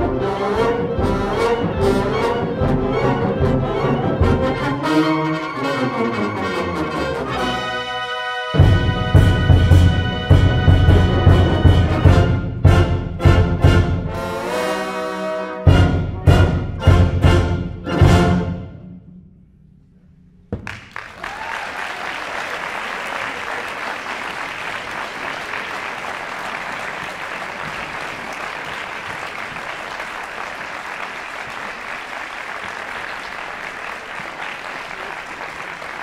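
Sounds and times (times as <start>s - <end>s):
audience applause: 20.6s - 36.0s.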